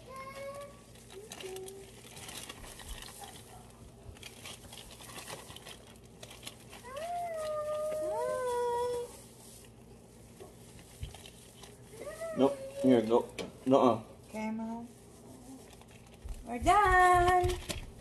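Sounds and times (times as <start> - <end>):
plastic bags rustling: 0.0 - 13.4, 14.2 - 18.0.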